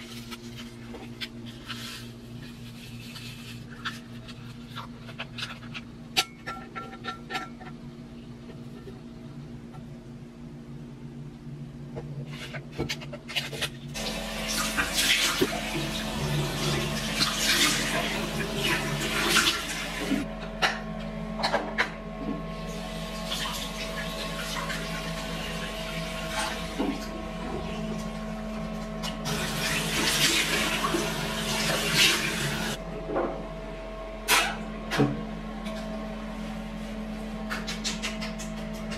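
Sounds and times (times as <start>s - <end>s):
steady background hum: 0.0s - 38.9s
tap water running: 14.0s - 20.3s, 22.6s - 32.8s.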